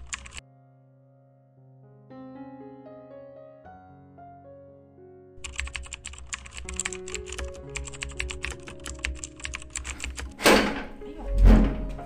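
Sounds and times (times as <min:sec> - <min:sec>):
rapid keyboard typing: 0:00.0 - 0:00.4, 0:05.4 - 0:10.6
soft piano music: 0:00.0 - 0:12.0.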